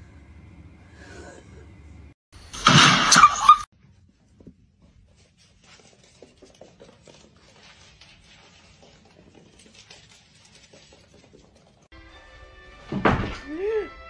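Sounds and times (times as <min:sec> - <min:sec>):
pet paws on hardwood floor: 0:04.4 - 0:11.8.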